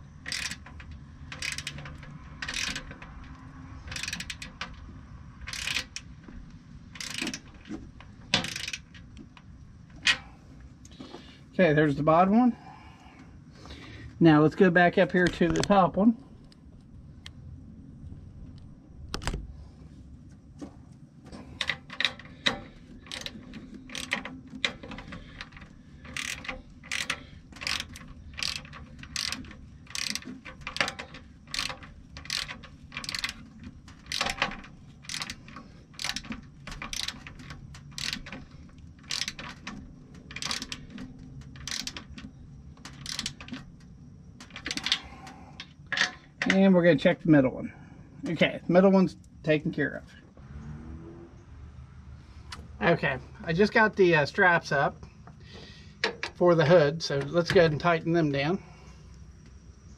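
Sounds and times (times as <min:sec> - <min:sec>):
ratchet wrench clicking: 0:00.2 - 0:06.3, 0:06.9 - 0:09.2, 0:21.6 - 0:43.8, 0:44.4 - 0:46.2.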